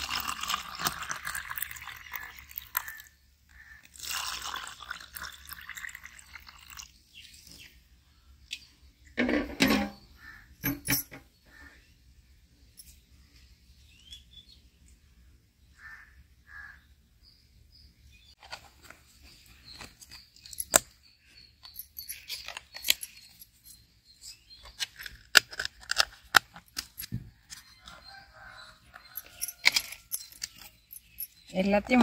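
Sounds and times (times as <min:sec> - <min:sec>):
plastic lids clicking and snapping: 0:24.7 - 0:27.1.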